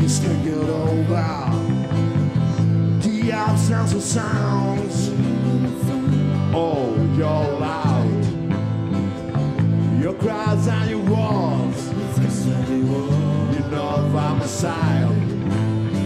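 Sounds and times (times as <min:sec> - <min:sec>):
man singing: 0:00.0 - 0:02.0, 0:02.6 - 0:08.6, 0:09.8 - 0:16.0
acoustic guitar: 0:00.0 - 0:16.0
electric bass: 0:00.0 - 0:16.0.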